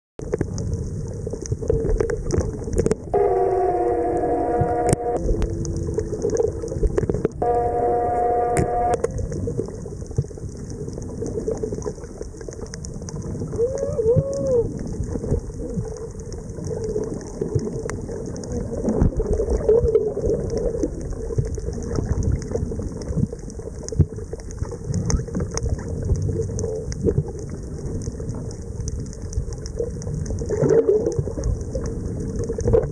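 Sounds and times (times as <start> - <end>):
low underwater rumble: 0.2 - 32.9.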